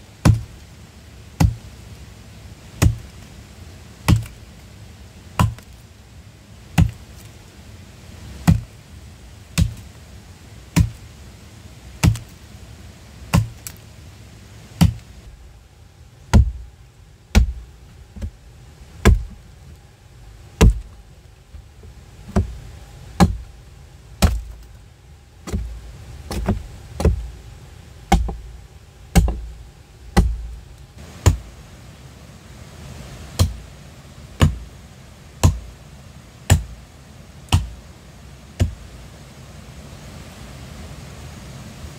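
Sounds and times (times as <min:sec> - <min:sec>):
hand tool striking wood: 0:00.2 - 0:00.5, 0:01.4 - 0:01.7, 0:02.8 - 0:03.1, 0:04.1 - 0:04.4, 0:05.4 - 0:05.8, 0:06.8 - 0:07.3, 0:08.4 - 0:08.7, 0:09.6 - 0:09.9, 0:10.8 - 0:11.0, 0:12.0 - 0:12.3, 0:13.3 - 0:13.8, 0:14.8 - 0:15.0, 0:16.3 - 0:16.7, 0:17.3 - 0:18.4, 0:19.0 - 0:19.4, 0:20.6 - 0:21.6, 0:22.2 - 0:22.6, 0:23.2 - 0:23.5, 0:24.2 - 0:24.7, 0:25.4 - 0:27.3, 0:28.1 - 0:28.5, 0:29.1 - 0:30.6, 0:31.2 - 0:31.4, 0:33.4 - 0:33.6, 0:34.4 - 0:34.7, 0:35.4 - 0:35.6, 0:36.5 - 0:36.7, 0:37.5 - 0:37.8, 0:38.6 - 0:38.8.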